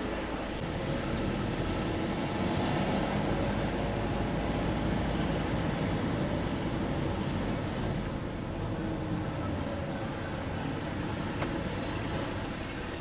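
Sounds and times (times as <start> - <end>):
tyre noise on road: 0.0 - 13.0.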